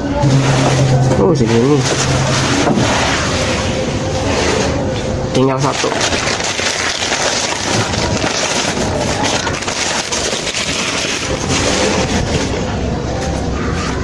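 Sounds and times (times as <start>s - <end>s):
newspaper crinkling and rustling: 5.4s - 12.6s.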